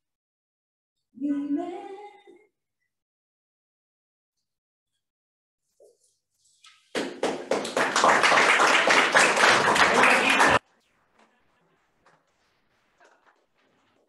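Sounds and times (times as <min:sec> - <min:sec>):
audience applauding: 0:06.9 - 0:10.6.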